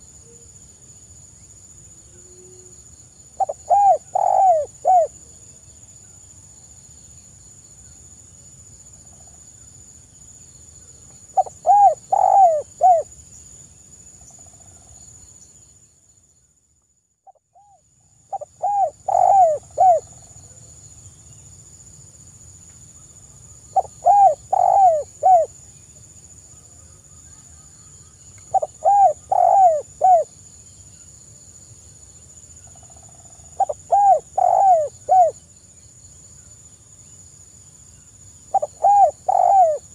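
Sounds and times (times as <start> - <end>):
dove cooing: 3.4 - 5.1, 11.4 - 13.1, 18.3 - 20.1, 23.8 - 25.5, 28.5 - 30.3, 33.6 - 35.4, 38.5 - 39.9.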